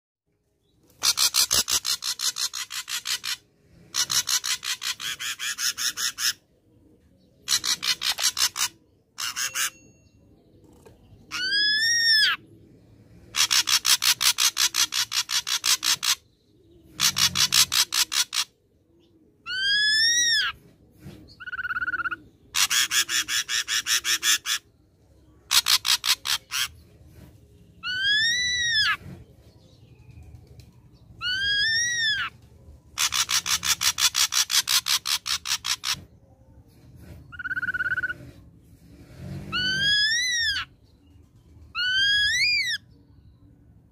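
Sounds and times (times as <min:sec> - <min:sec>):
bird harsh rattling song: 0:00.8 - 0:06.5, 0:07.4 - 0:12.4, 0:13.2 - 0:18.6, 0:19.5 - 0:24.7, 0:25.4 - 0:42.9
bird whistled notes: 0:37.3 - 0:38.3.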